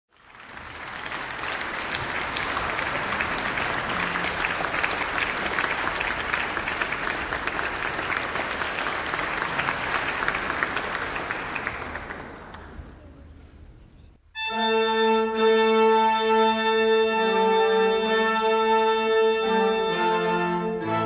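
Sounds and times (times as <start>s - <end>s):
audience applauding: 0.1s - 13.3s.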